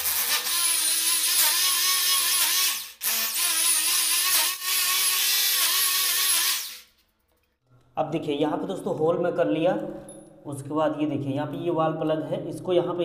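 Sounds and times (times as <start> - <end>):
electric drill boring into tile: 0.0 - 6.9.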